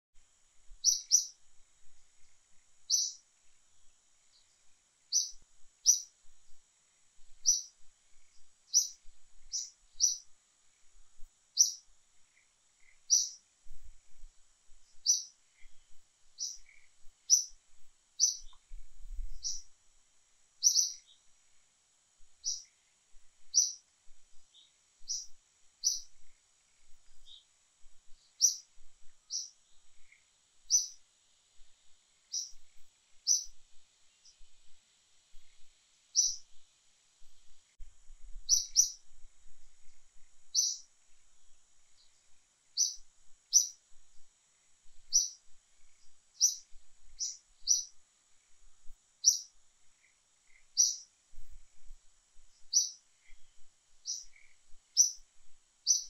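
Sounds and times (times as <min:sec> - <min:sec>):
faint high-pitched drone: 0:00.2 - 0:56.0
bird chirping: 0:00.8 - 0:01.5, 0:02.1 - 0:03.3, 0:04.2 - 0:06.6, 0:07.2 - 0:17.6, 0:18.2 - 0:19.8, 0:20.6 - 0:21.3, 0:22.4 - 0:31.0, 0:32.2 - 0:34.5, 0:35.3 - 0:36.6, 0:38.4 - 0:39.2, 0:39.8 - 0:40.9, 0:41.9 - 0:43.8, 0:44.9 - 0:48.6, 0:49.2 - 0:51.5, 0:52.5 - 0:56.0.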